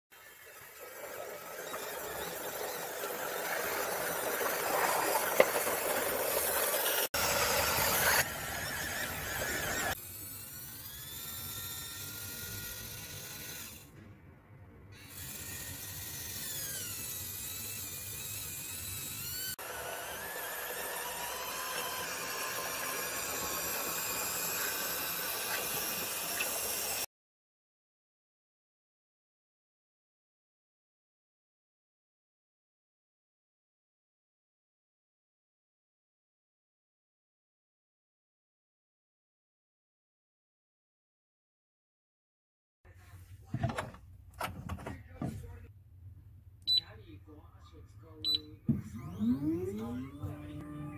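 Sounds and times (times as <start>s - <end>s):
electric motors and gears whining: 0.2s - 14.0s, 14.9s - 27.1s, 48.7s - 50.9s
plastic tracks grinding on wood: 1.5s - 8.2s.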